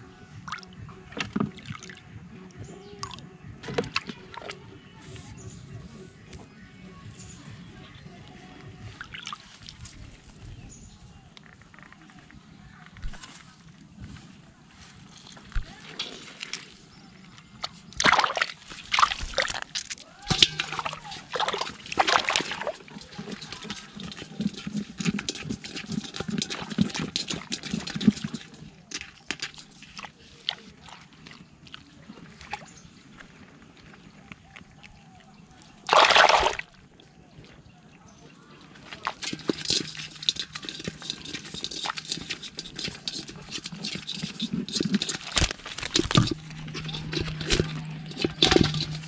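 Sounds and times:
low gurgling: 15.5s - 49.0s
hand splashing muddy water: 17.9s - 32.7s, 35.8s - 36.8s.

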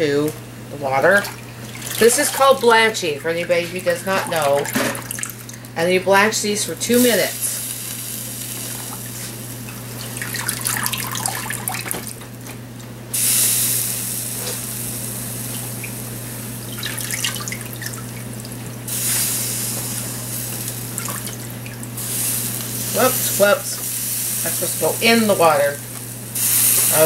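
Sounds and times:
steady low hum: 0.0s - 27.0s
water dripping and splashing into tub: 4.1s - 5.6s, 10.0s - 12.2s, 16.7s - 18.6s, 21.0s - 22.0s.

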